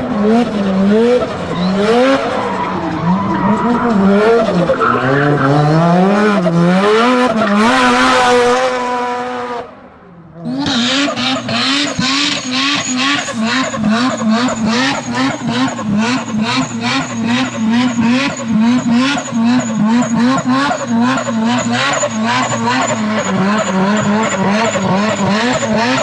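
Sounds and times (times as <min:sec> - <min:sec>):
rotary engines revving: 0:00.0 - 0:26.0
tyres squealing: 0:11.4 - 0:26.0.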